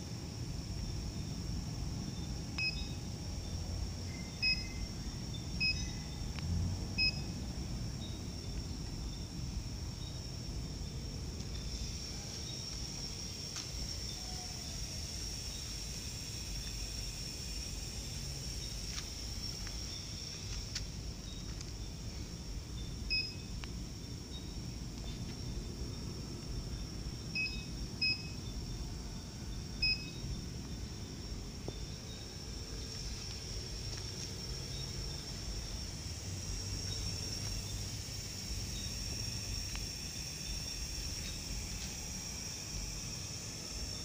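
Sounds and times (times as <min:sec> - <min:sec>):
steady low hum: 0:00.0 - 0:44.0
faint high steady tone: 0:02.0 - 0:06.4, 0:07.0 - 0:08.6, 0:22.7 - 0:23.7, 0:27.3 - 0:31.2
short electronic beeps: 0:05.6 - 0:06.0.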